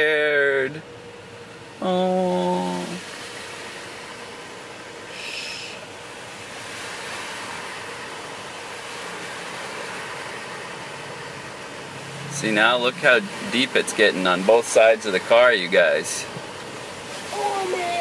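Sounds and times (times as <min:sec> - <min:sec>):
cars splashing through water: 0:02.5 - 0:18.0
car tyres hissing on wet road: 0:03.0 - 0:18.0.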